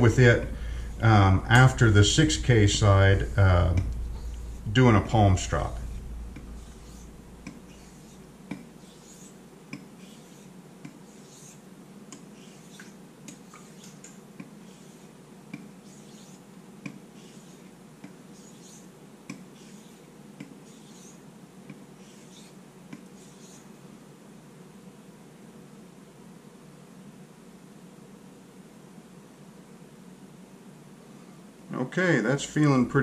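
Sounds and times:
razor hissing on whetstone: 5.5s - 9.4s, 10.0s - 11.6s, 13.5s - 15.1s, 15.8s - 16.5s, 17.2s - 17.7s, 19.6s - 20.0s.

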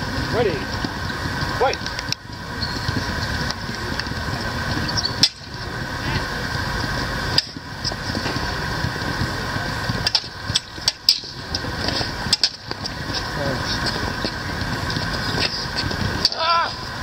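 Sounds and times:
steady hum: 0.0s - 17.0s
lightsaber blades clacking: 5.2s - 5.5s, 12.3s - 12.7s.

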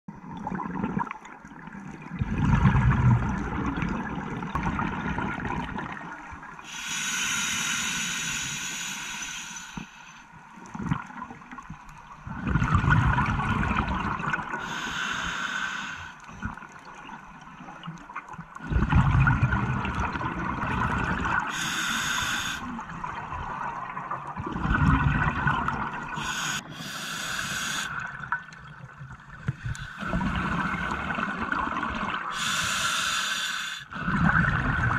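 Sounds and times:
exhaled bubbles rumbling: 0.1s - 6.6s, 10.6s - 14.6s, 16.3s - 21.5s, 22.6s - 26.4s, 27.9s - 32.4s, 33.9s - 34.9s
regulator hissing inhale: 6.6s - 10.3s, 14.6s - 16.3s, 21.5s - 22.7s, 26.2s - 28.0s, 32.3s - 34.0s.

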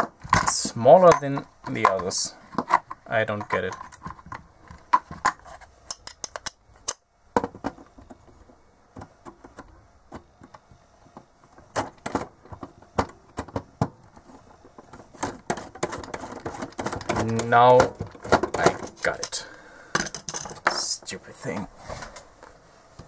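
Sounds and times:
metal tool clicking against nut: 5.9s - 7.0s.

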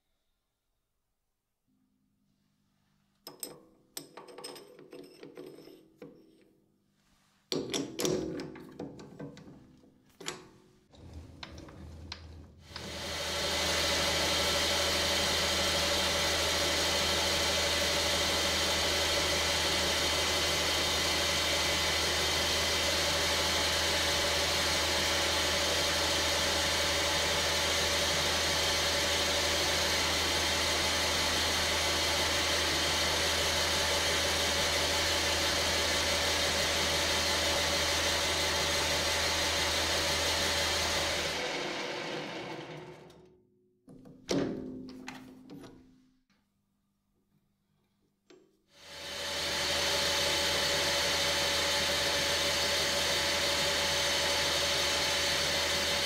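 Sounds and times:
metal lathe running: 12.8s - 42.8s, 48.9s - 56.0s.

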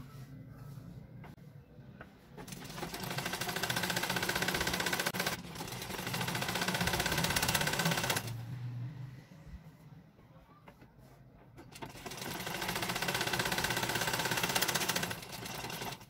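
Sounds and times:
sewing machine stitching: 2.4s - 8.4s, 11.6s - 16.0s.

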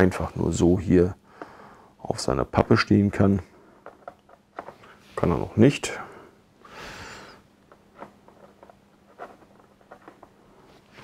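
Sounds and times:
soft rustle: 7.7s - 11.0s.

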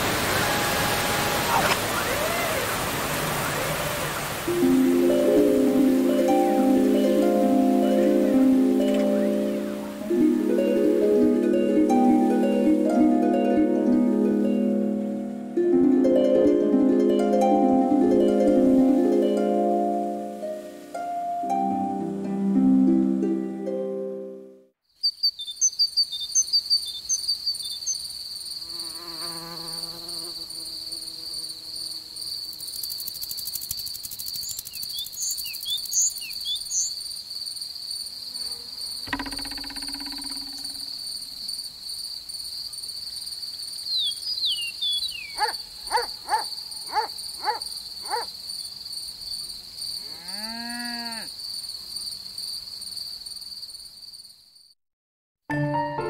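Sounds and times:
cricket trill: 24.8s - 54.8s
insect buzzes and chirps: 24.8s - 54.8s.

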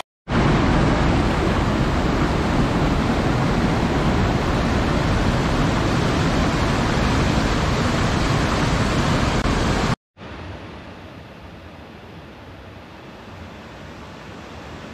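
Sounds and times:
waterfall rushing into pool: 0.3s - 10.7s.

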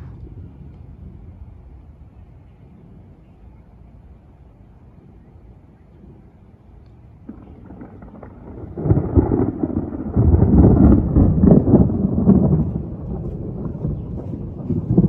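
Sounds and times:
rolling thunder: 0.0s - 4.2s, 4.8s - 15.0s.

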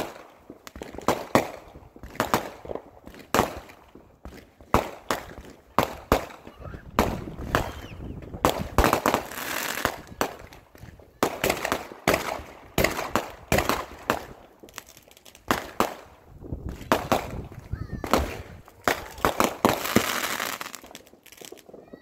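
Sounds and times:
fireworks bangs: 0.0s - 22.0s
fireworks hissing: 5.1s - 21.8s.

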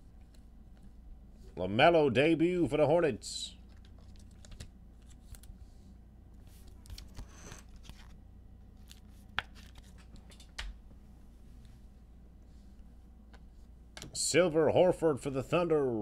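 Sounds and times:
cards and wrappers rustling: 6.6s - 8.2s, 8.8s - 10.4s.

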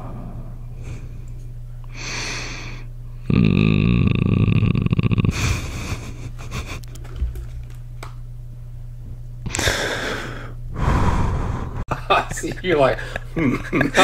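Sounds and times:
man growling: 3.2s - 5.7s
close-up breathing: 9.6s - 11.8s.

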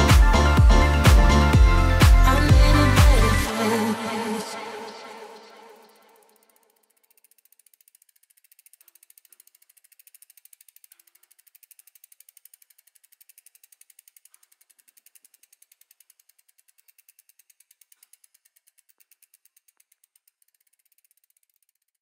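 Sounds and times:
bicycle freehub ratchet clicking: 5.8s - 22.0s.

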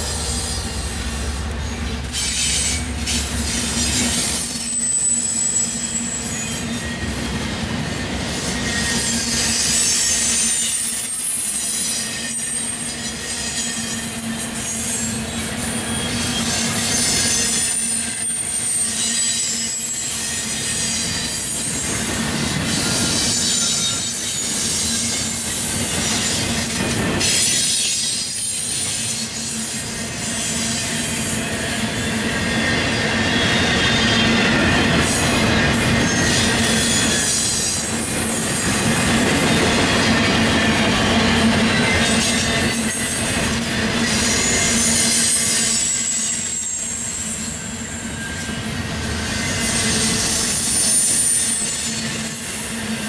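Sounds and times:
diesel locomotive rumble: 0.0s - 4.5s
high-pitched wheel squeal: 0.3s - 38.4s, 43.9s - 53.0s.

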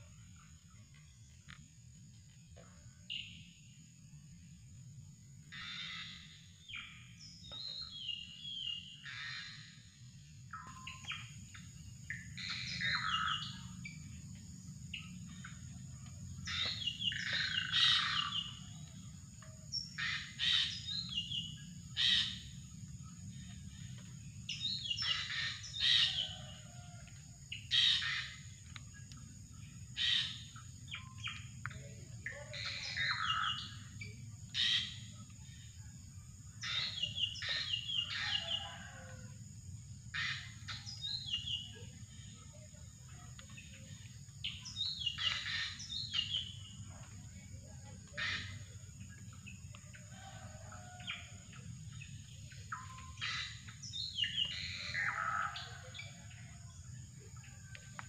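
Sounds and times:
bird chirping calls: 15.0s - 35.6s, 36.5s - 39.1s, 40.1s - 56.5s.

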